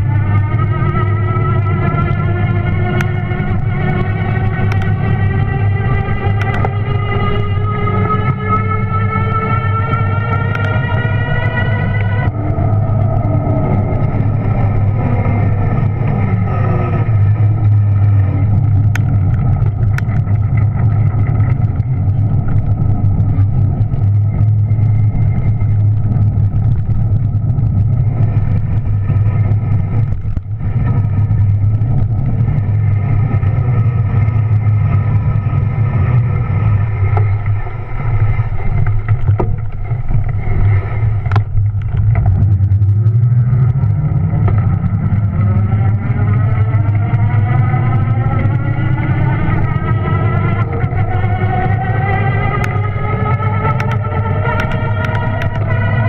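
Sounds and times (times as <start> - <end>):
electric bike motor whining: 0.0 - 56.0
wind and tyre rumble: 0.0 - 56.0.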